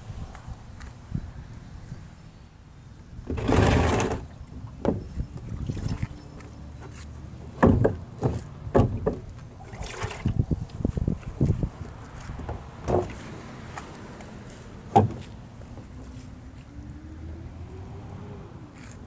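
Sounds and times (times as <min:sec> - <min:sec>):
plastic bin scraping on concrete: 0:03.3 - 0:04.4.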